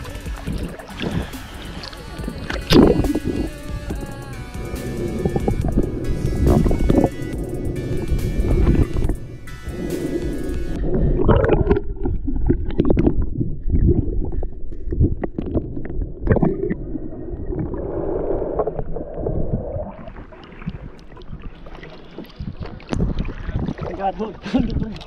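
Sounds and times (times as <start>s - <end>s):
rake knocking and scraping underwater: 0.0s - 16.8s
shallow water sloshing: 0.0s - 25.0s
water gurgling: 0.0s - 25.0s.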